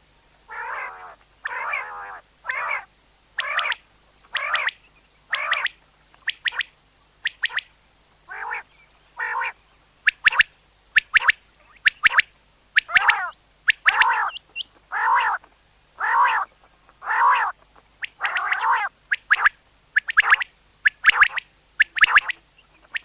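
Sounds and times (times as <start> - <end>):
quail calling: 0.5 - 7.7, 8.3 - 23.0.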